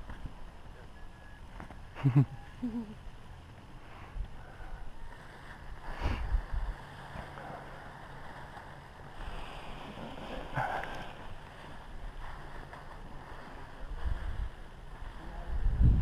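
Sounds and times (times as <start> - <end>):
wind buffeting microphone: 5.7 - 6.9, 13.2 - 16.0
harness gear rustling: 6.4 - 15.3.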